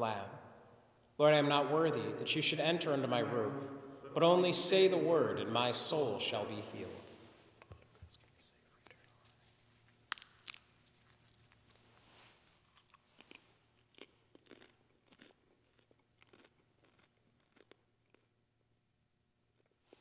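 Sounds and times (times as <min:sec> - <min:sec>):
chewing and crunching wafer: 0:09.9 - 0:18.4, 0:19.5 - 0:20.0.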